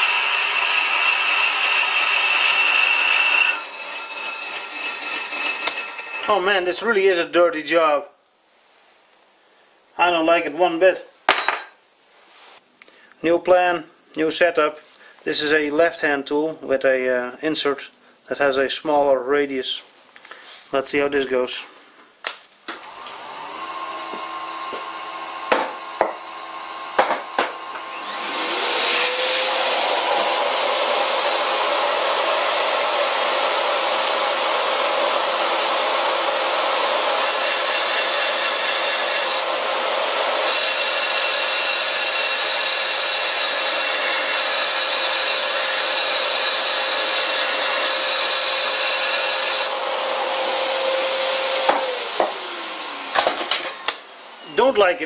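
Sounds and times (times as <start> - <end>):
lathe running: 0.0 - 6.4, 22.7 - 54.2
vacuum cleaner whining: 0.0 - 6.4, 22.6 - 55.0.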